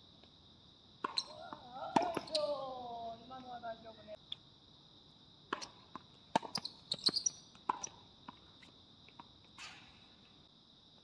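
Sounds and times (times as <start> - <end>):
tennis ball pops and bounces: 5.5 - 8.4.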